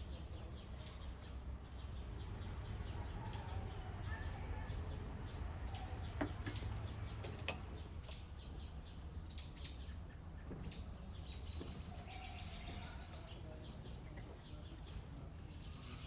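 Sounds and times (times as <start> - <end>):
low outdoor rumble: 0.0 - 9.3
songbirds chirping: 0.0 - 16.0.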